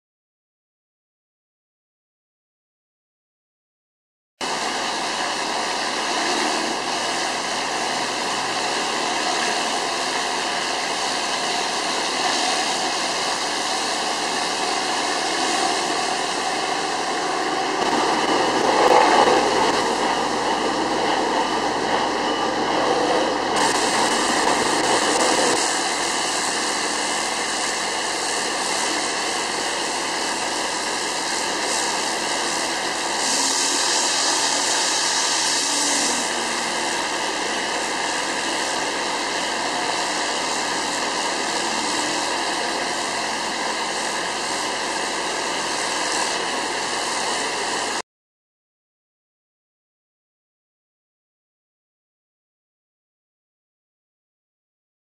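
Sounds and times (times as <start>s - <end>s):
pump and motor rushing: 4.4s - 48.0s
water jets hissing: 4.4s - 48.0s.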